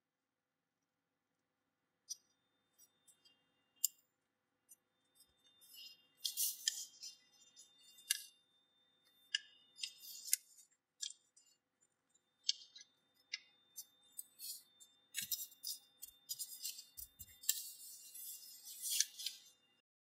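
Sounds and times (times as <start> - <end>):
paper folding crackles: 5.8 - 8.3, 9.3 - 11.2, 14.1 - 19.5.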